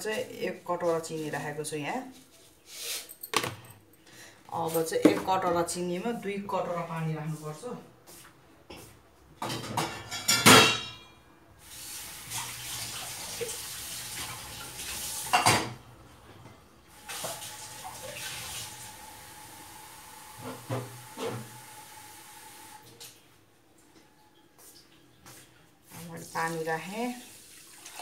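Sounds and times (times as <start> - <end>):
metal utensils clattering: 9.4 - 11.2.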